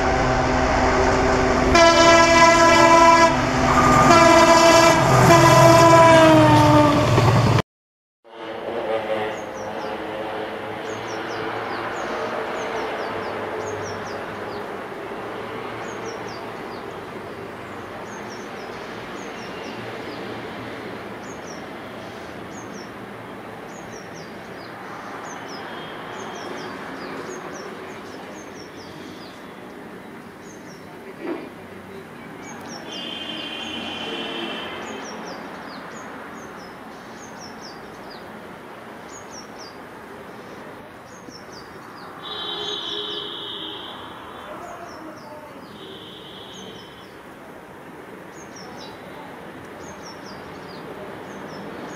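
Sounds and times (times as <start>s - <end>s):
distant diesel locomotive rumble: 0.0s - 7.6s, 8.4s - 48.4s
bird chirping: 23.7s - 29.6s, 41.1s - 47.3s.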